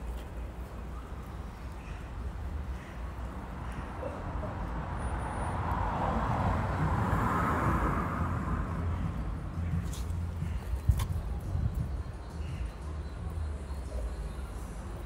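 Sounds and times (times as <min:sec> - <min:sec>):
vehicle passing by: 0:04.3 - 0:10.6.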